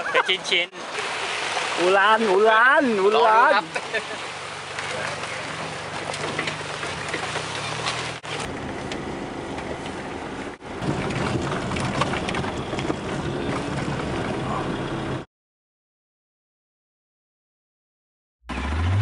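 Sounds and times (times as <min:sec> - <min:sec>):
vehicle engine and road noise: 0:00.0 - 0:15.3, 0:18.5 - 0:19.0
vehicle on rough dirt track: 0:00.0 - 0:15.3, 0:18.5 - 0:19.0.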